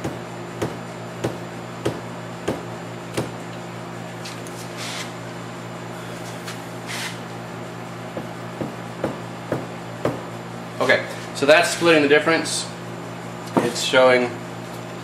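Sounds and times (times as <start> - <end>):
steady low hum: 0.0 - 15.0
short hissing noises: 6.9 - 7.2.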